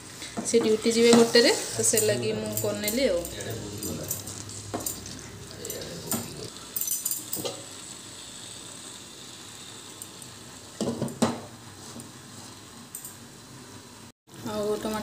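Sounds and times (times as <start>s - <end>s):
chicken sizzling in a frying pan: 0.0s - 2.0s, 3.1s - 15.0s
wooden spatula scraping: 0.7s - 2.0s.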